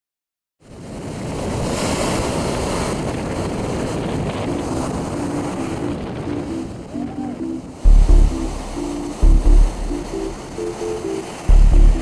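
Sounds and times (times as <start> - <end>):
surf breaking on beach: 0.6 - 12.0
wind on microphone: 0.7 - 12.0
faint music notes: 4.4 - 12.0.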